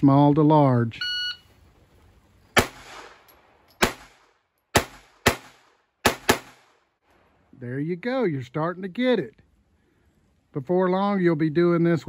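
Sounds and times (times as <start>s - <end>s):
pistol shots: 2.6s - 6.9s.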